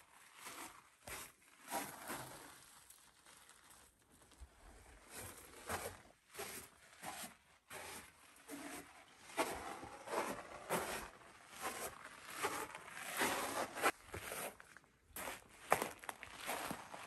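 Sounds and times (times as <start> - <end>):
footsteps crunching on gravelly sand: 9.4 - 17.0.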